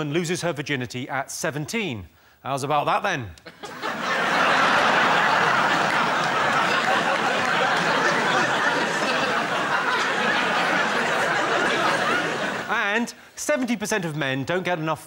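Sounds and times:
studio audience laughing: 3.5s - 12.8s.

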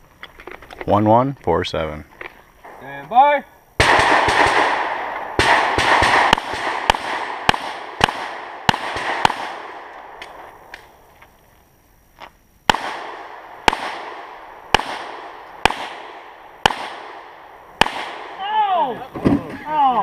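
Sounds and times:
handgun shots: 5.4s - 9.6s.

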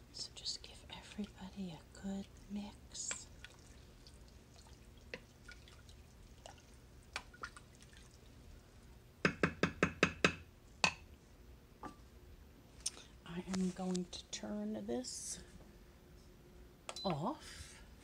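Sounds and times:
spoon stirring thick sauce: 2.2s - 8.0s
spoon knocking on metal pot: 9.2s - 11.0s.

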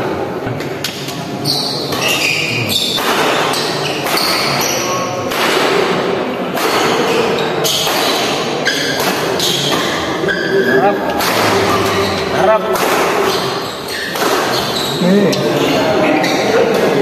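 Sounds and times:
crowd noise: 0.0s - 17.0s
rackets hitting shuttlecock: 2.8s - 10.2s, 11.1s - 14.9s.

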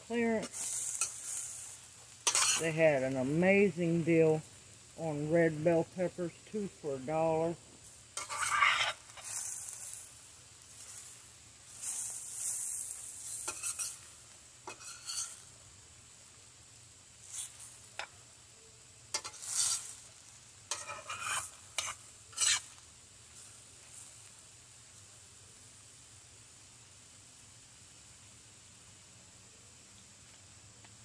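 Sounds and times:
vegetables sizzling in oil: 0.0s - 31.0s
metal spoon scraping a pan: 0.4s - 2.8s, 8.1s - 10.1s, 11.7s - 15.5s, 17.2s - 18.1s, 19.1s - 22.8s.

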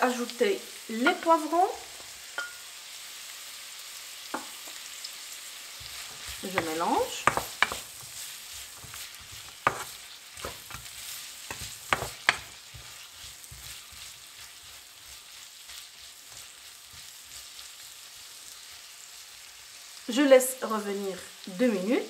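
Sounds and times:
vegetables sizzling in oil: 0.0s - 22.0s
wooden spatula knocking on wok: 5.8s - 8.0s, 8.7s - 10.9s, 11.5s - 13.7s.

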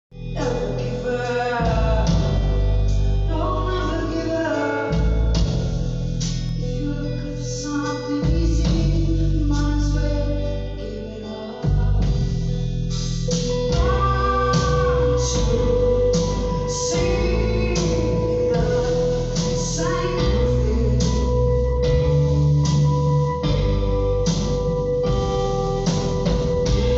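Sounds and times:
deep bass notes: 0.0s - 26.9s
guitar: 0.0s - 26.9s
woman singing: 0.4s - 2.6s, 3.3s - 5.3s, 6.6s - 12.3s, 13.5s - 22.7s.

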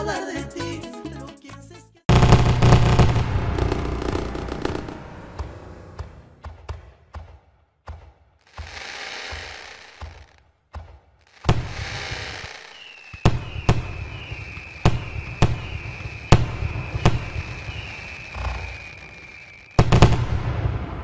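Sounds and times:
fireworks crackling: 2.1s - 6.4s, 8.4s - 21.0s
fireworks banging: 2.1s - 21.0s
high whistle sliding down: 12.2s - 19.9s.

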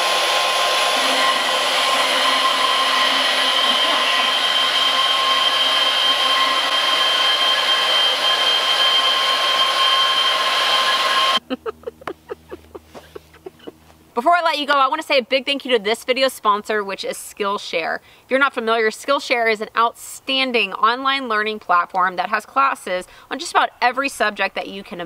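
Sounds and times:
electric motor whining: 0.0s - 11.4s.

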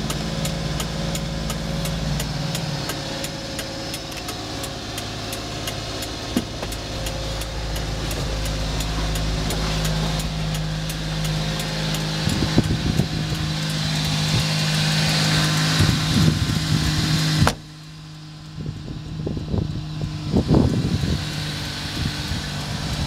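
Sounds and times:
truck engine idling: 0.0s - 23.0s
thump: 17.4s - 17.6s.

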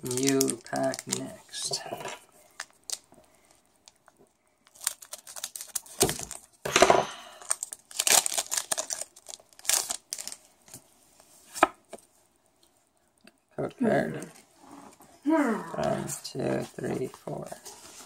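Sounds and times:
foil wrapper tearing and crinkling: 0.0s - 1.4s, 2.5s - 3.1s, 4.6s - 6.6s, 7.4s - 10.7s.

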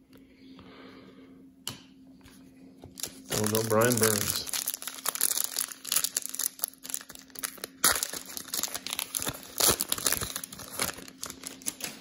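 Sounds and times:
foil wrapper crinkling: 2.9s - 12.0s
foil wrapper ripping: 3.0s - 12.0s.

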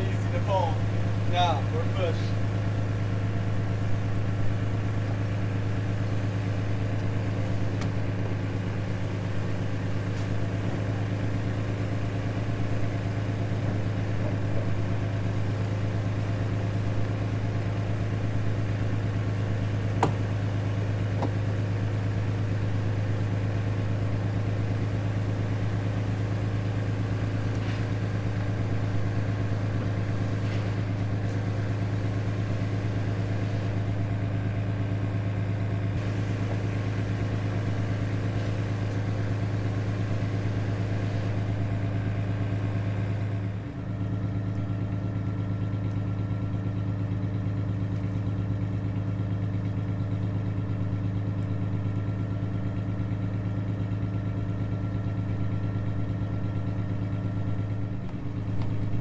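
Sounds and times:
boat engine idling: 0.0s - 59.0s.

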